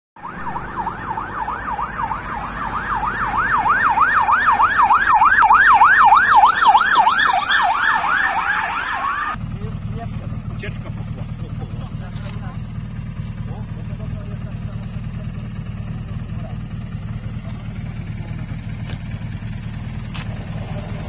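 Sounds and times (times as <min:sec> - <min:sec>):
vehicle siren yelping: 0:00.2 - 0:09.4, 0:14.4 - 0:21.0.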